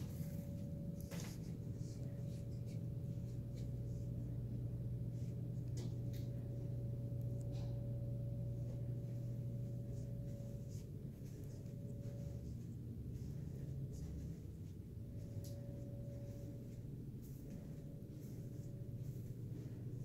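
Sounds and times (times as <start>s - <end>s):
steady low hum: 0.0s - 20.0s
thin steady tone: 6.3s - 20.0s.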